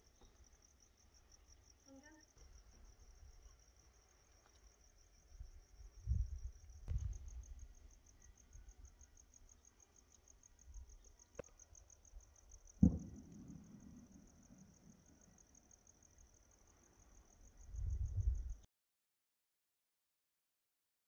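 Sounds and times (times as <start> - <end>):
crickets chirping: 0.0 - 18.7
low boom: 12.8 - 14.4.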